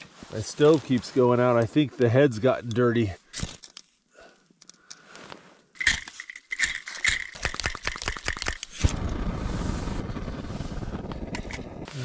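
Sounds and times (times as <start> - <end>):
flint and steel scraping: 2.5 - 8.9
stove flame rushing: 8.8 - 12.0.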